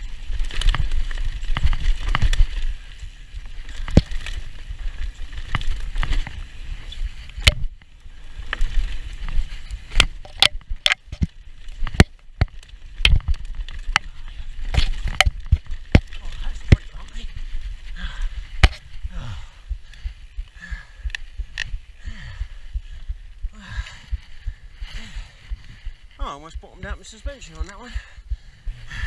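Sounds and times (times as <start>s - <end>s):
bike clacking and rattling: 0.0s - 19.0s
wind rumbling on microphone: 0.0s - 29.0s.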